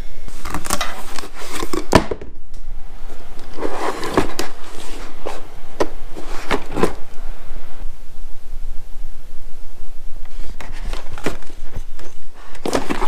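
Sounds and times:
rustling scrape: 0.3 - 1.9, 3.4 - 7.1, 10.3 - 13.0.

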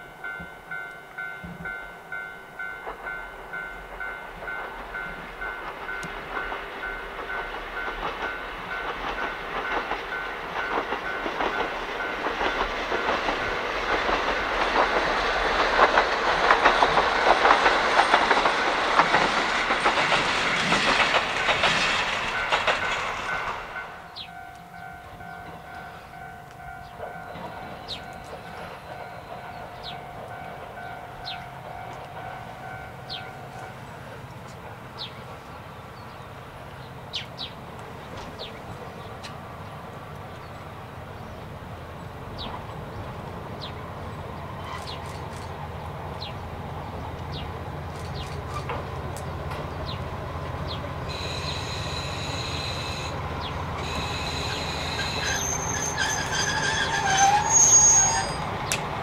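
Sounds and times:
diesel train engine rumble: 0.0 - 59.0
high brake squeal: 44.6 - 45.2, 51.1 - 53.2, 53.8 - 58.6.

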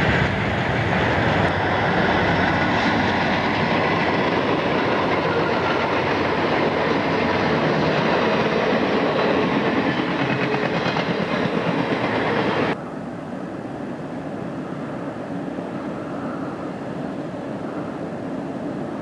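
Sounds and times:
diesel locomotive passing at speed: 0.0 - 12.9.

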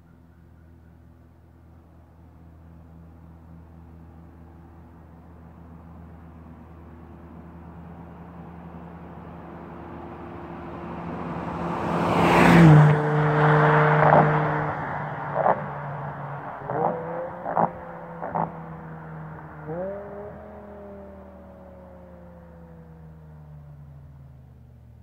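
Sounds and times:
car engine at full throttle passing: 5.6 - 24.6.

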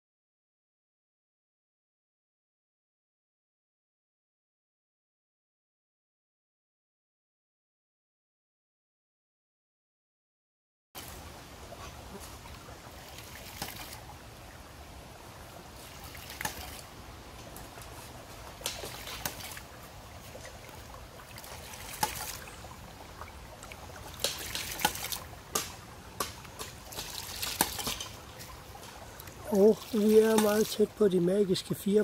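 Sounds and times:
water trickling and splashing: 11.0 - 32.0
pump clacks: 11.9 - 14.0, 15.9 - 22.5, 23.1 - 31.8.

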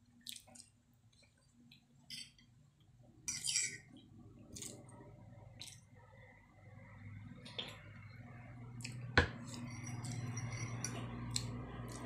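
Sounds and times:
cutlery scraping and clinking on plate: 3.3 - 3.9, 9.4 - 11.2.

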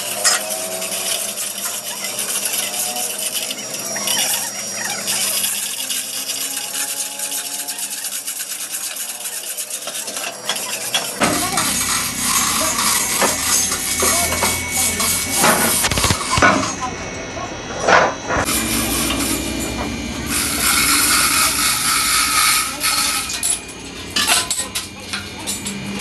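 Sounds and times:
low steady rumble: 18.3 - 25.7
metal chains clinking and scraping: 18.4 - 26.0.

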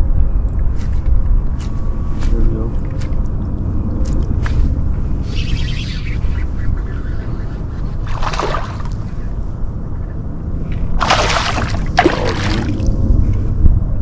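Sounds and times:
steady low rumble: 0.0 - 14.0
water sloshing and splashing: 8.0 - 9.1, 10.9 - 13.1.

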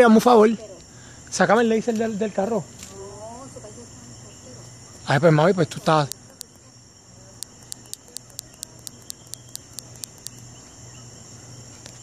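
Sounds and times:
insects droning: 0.0 - 12.0
insect clicking chirps: 5.4 - 11.2.

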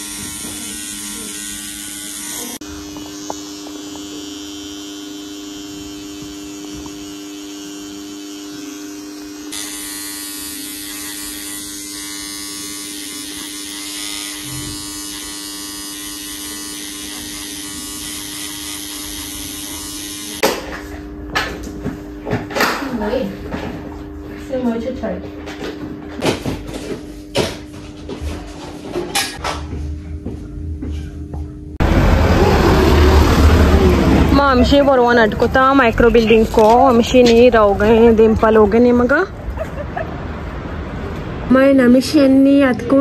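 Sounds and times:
electric tattoo pen buzzing: 0.0 - 22.3, 31.8 - 39.0.

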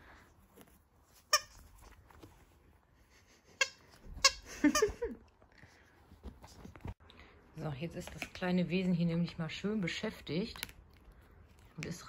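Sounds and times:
squeaky toy squeaking: 1.2 - 1.6, 3.6 - 4.9.

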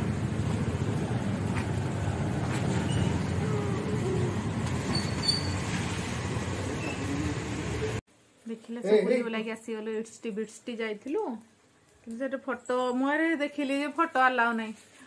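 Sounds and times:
traffic rumble: 0.0 - 8.0
faint voices: 3.3 - 4.6.

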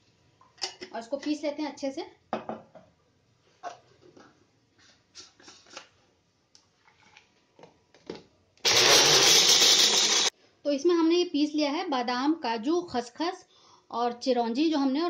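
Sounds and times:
electric spice grinder running: 8.6 - 10.3.

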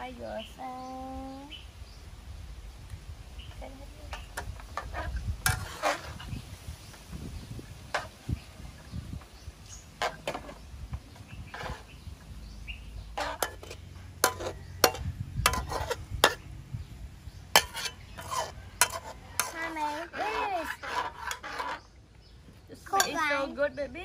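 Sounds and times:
metal spatula scraping a wok: 4.2 - 6.5, 11.4 - 12.1, 13.1 - 16.5, 17.5 - 22.0.

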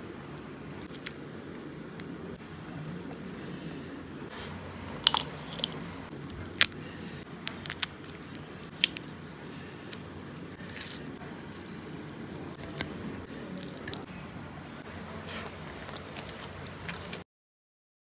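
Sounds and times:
biting and chewing: 0.4 - 2.4, 4.8 - 17.2
wet squishing of food mixed by hand: 4.6 - 17.2.

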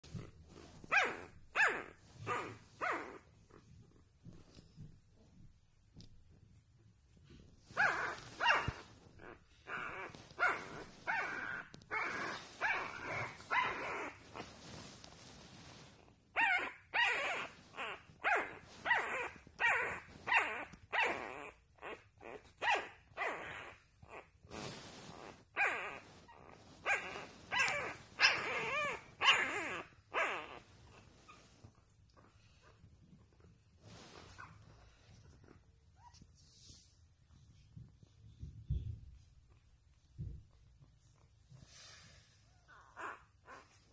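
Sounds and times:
puppies yipping and whining: 0.1 - 3.5, 7.6 - 32.8.

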